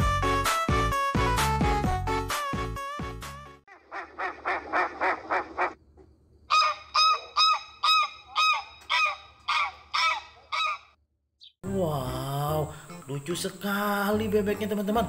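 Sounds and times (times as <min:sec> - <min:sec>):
geese honking: 0:03.7 - 0:05.8, 0:06.5 - 0:11.0.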